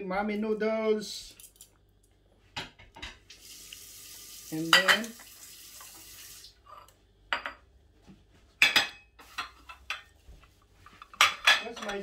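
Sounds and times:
dishes clinking: 4.7 - 5.2, 6.7 - 7.7, 8.6 - 10.2, 10.9 - 12.0.

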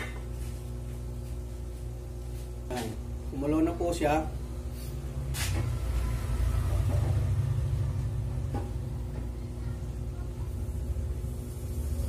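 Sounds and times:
pot of water boiling: 10.5 - 12.0.

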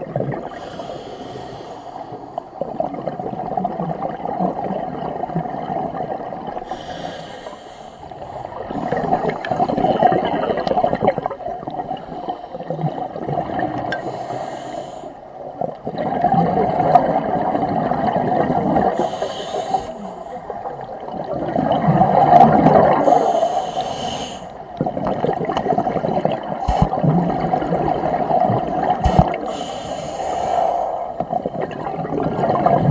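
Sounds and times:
bubbles rushing: 0.0 - 0.5, 2.6 - 6.7, 8.5 - 12.0, 12.7 - 14.0, 15.7 - 19.0, 20.5 - 23.1, 24.7 - 29.5, 31.3 - 32.9
regulator hiss on inhale: 0.5 - 2.5, 6.6 - 9.2, 12.0 - 12.7, 13.9 - 15.3, 18.9 - 20.6, 23.0 - 24.6, 29.0 - 31.2.

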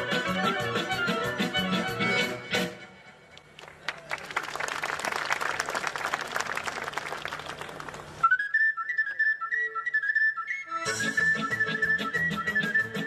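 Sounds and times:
drums: 0.0 - 2.9, 10.8 - 13.0
band music: 0.0 - 3.6, 10.6 - 13.0
applause: 3.5 - 8.2
shepherd's flute solo: 8.2 - 13.0.

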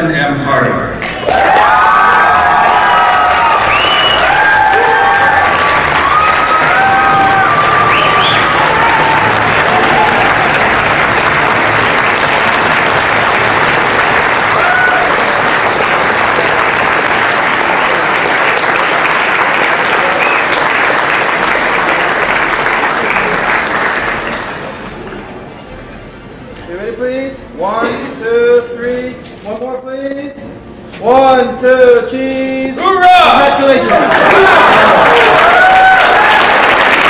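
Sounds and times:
audience applauding: 1.0 - 25.2, 33.8 - 37.0.

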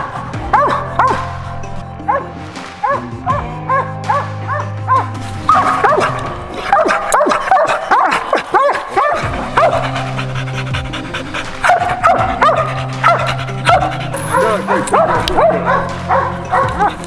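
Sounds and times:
dog barking: 0.0 - 3.0, 3.6 - 17.0
background music: 0.0 - 17.0.

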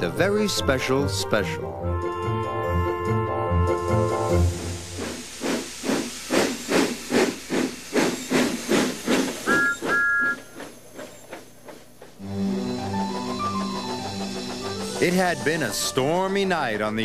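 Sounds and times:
steam locomotive chuffing: 3.8 - 17.0
two-note train whistle toots: 9.4 - 10.5.

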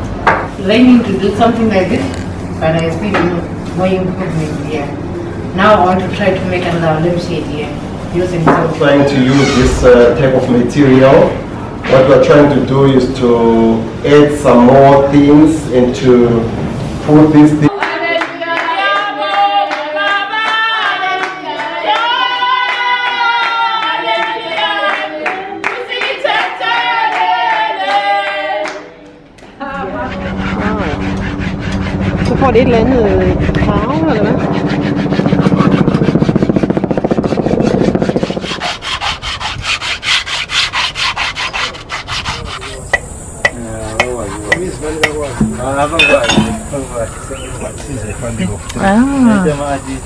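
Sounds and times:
hands clapping in rhythm: 17.7 - 22.1, 22.7 - 29.6
women singing together: 17.7 - 28.9
hand rubbing on wood: 29.8 - 46.9.

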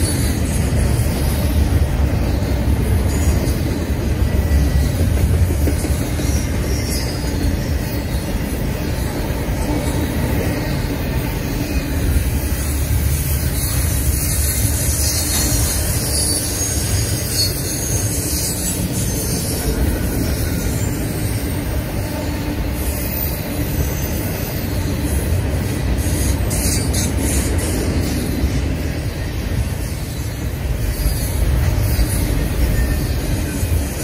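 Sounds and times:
freight train wheels rumbling: 0.0 - 34.0.

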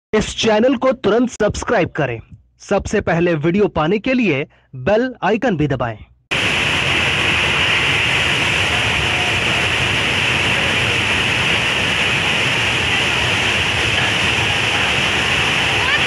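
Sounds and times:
floodwater roaring past: 6.3 - 16.0.

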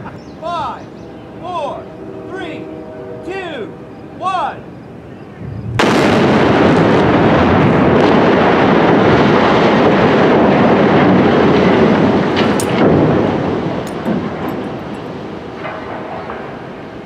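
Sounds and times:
loud explosive blast: 5.4 - 17.0
steel spans crashing rumble: 5.4 - 17.0.

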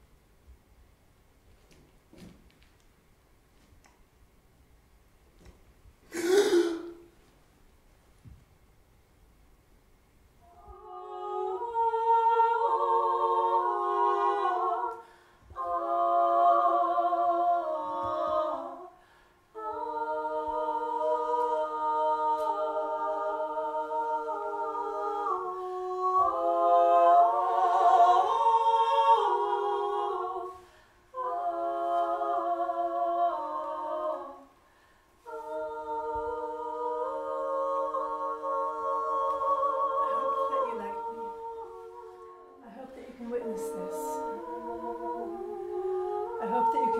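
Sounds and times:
women singing a cappella: 10.4 - 46.9.

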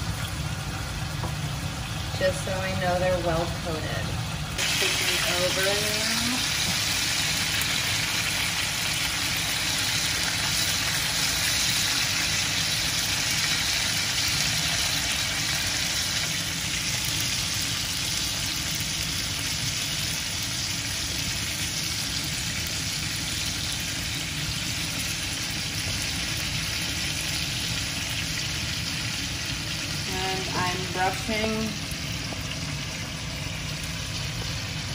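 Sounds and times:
low steady hum: 0.0 - 18.2
chicken sizzling in grill pan: 0.0 - 34.9.

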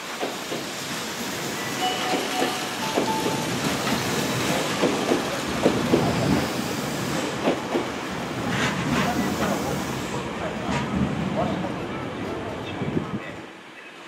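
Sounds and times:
train wheels rumbling on rails: 0.0 - 13.2
steady high tones: 1.6 - 4.6.

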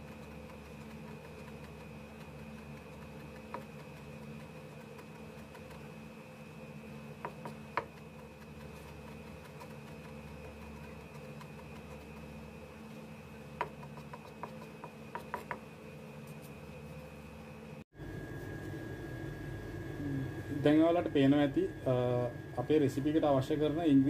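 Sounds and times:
steady background hum: 0.0 - 24.0
knife chopping on plastic board: 2.8 - 3.9, 13.6 - 15.7.

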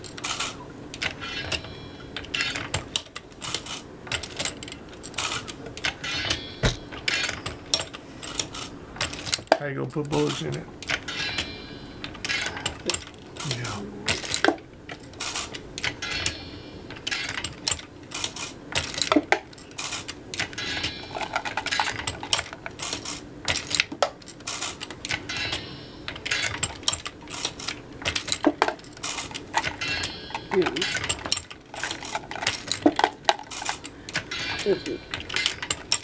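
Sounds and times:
brass cases clinking together: 0.0 - 36.0
metallic clacks of reloading press: 0.0 - 36.0.

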